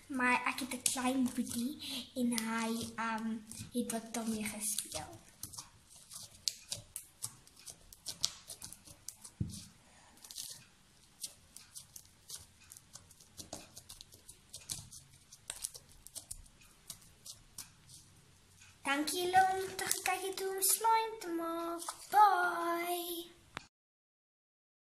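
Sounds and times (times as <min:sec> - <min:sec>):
slime crackling and popping: 0:02.4 - 0:09.4, 0:10.2 - 0:18.0, 0:19.0 - 0:22.2.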